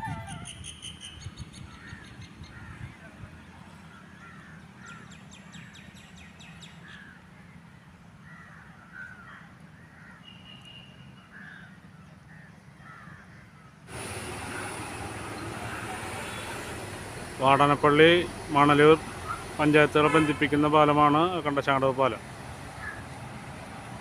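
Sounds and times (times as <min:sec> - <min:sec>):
birds calling: 0:00.0 - 0:07.6, 0:08.2 - 0:23.2
loud rushing noise: 0:13.9 - 0:20.1.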